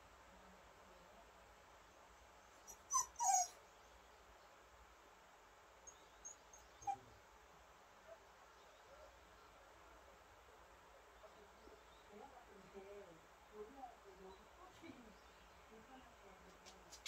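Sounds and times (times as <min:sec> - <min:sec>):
dog whining: 0:02.7 - 0:03.6.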